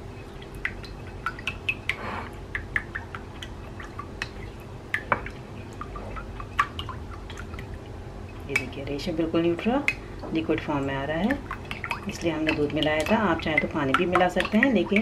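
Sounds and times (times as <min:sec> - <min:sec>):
liquid egg sloshing: 0:00.0 - 0:15.0.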